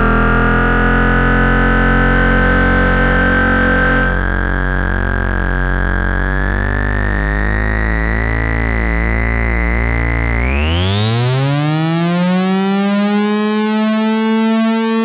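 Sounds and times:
synthesizer deep bass note: 0.0 - 15.0
synthesizer note pattern: 0.0 - 15.0
thin high synth tone: 1.5 - 4.3.

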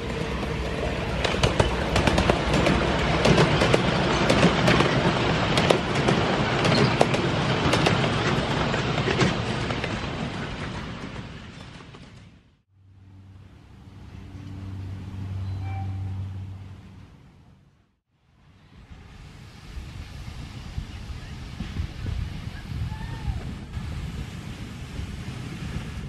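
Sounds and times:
steam train passing: 0.0 - 17.7, 18.3 - 26.0.

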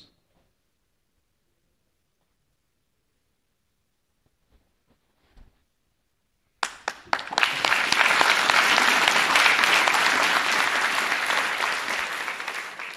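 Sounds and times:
audience applauding: 6.6 - 12.9.

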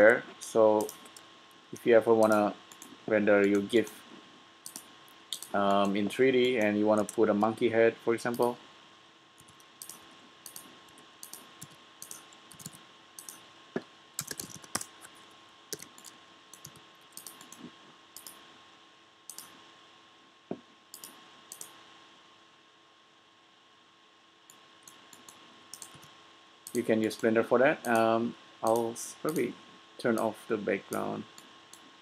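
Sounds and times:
computer keyboard typing: 0.8 - 1.2, 1.8 - 3.9, 4.6 - 7.2, 9.4 - 13.4, 14.2 - 17.6, 24.9 - 26.1
mouse clicks: 4.6 - 6.6, 19.3 - 19.6, 20.9 - 21.7.

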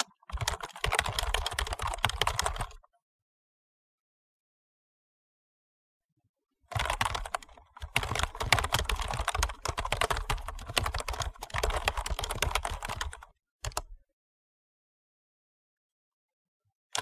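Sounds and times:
fast typing on keyboard: 0.0 - 2.8, 6.7 - 13.9.

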